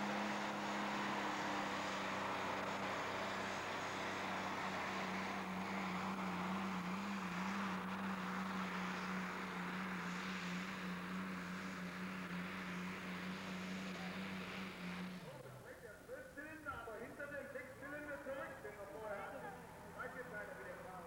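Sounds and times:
tractor diesel engine at full load: 0.0s - 15.6s.

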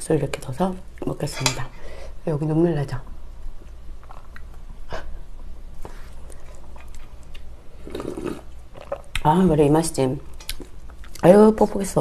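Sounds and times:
chewing with wet clicks: 4.0s - 4.6s, 6.3s - 7.5s, 10.4s - 11.2s.

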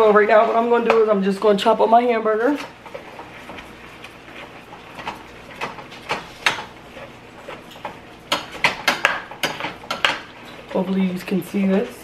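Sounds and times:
utensil chopping meat in metal pot: 0.0s - 10.8s.

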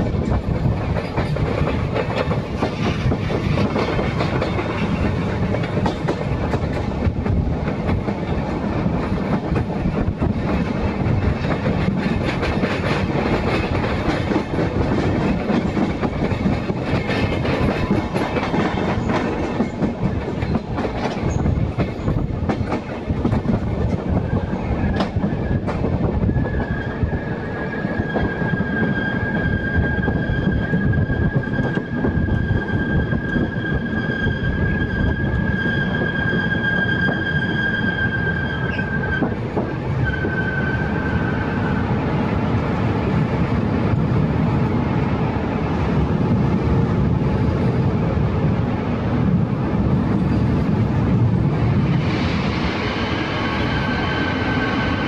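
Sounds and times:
train wheels on track: 0.0s - 55.0s
high-pitched wheel squeal: 27.8s - 39.3s.

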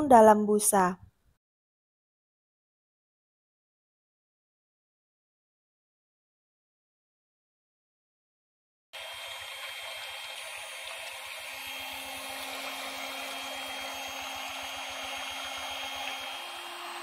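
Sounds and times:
electric hand mixer running: 9.0s - 17.0s.

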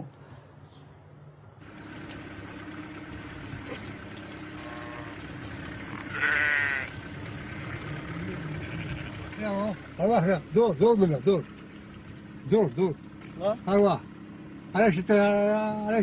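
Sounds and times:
steady low hum: 1.4s - 16.0s
sheep bleating: 4.4s - 9.8s.

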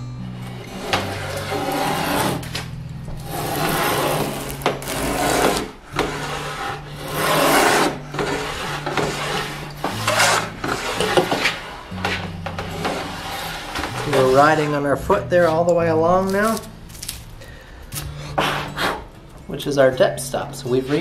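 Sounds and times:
plane shaving wood: 0.3s - 16.7s.

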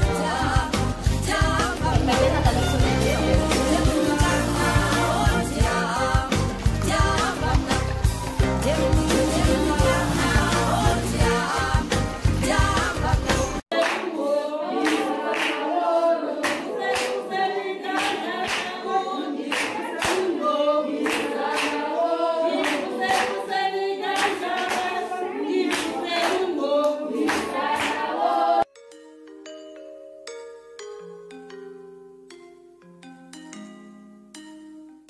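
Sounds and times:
women singing together: 0.0s - 28.7s
hand clapping: 13.7s - 15.7s, 16.4s - 17.2s, 17.9s - 21.9s, 22.6s - 23.5s, 24.1s - 25.0s, 25.6s - 28.0s.

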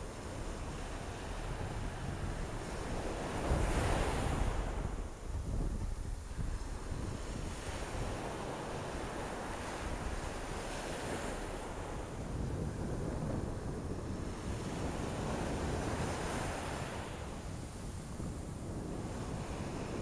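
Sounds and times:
ocean surf on beach: 0.0s - 20.0s
wind rumbling on microphone: 0.0s - 20.0s.

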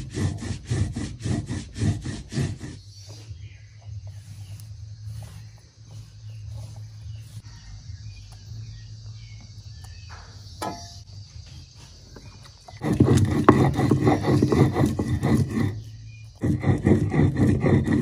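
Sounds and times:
stone roller grinding on stone: 0.0s - 2.9s, 12.7s - 18.0s
steady low hum: 0.0s - 18.0s.

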